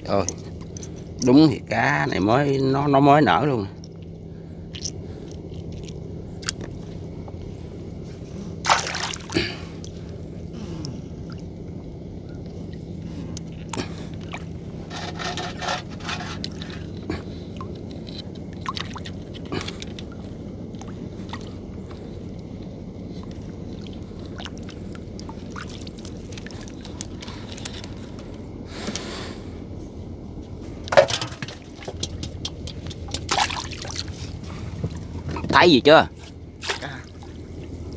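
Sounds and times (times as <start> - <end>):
low hum: 0.0 - 37.9
water sloshing against boat: 3.8 - 28.9, 29.6 - 37.9
gear knocking and scraping: 14.8 - 17.0.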